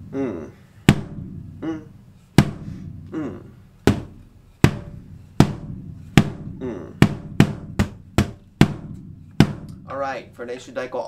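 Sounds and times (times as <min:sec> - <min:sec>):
drumsticks striking practice drum: 0:00.9 - 0:01.4, 0:02.3 - 0:03.2, 0:03.8 - 0:10.8.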